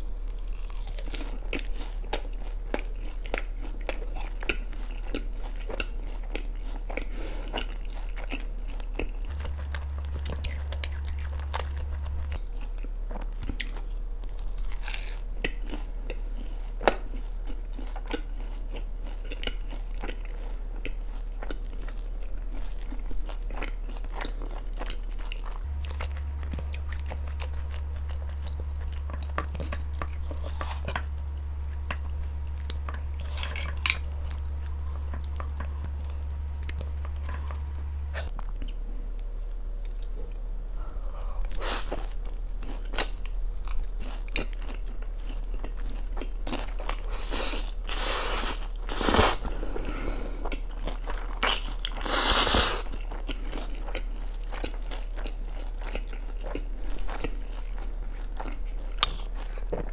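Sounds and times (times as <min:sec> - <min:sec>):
crunchy chewing: 0:00.0 - 0:59.9
steady low hum: 0:00.0 - 0:59.9
wet mouth sounds: 0:47.0 - 0:50.6, 0:51.4 - 0:52.9.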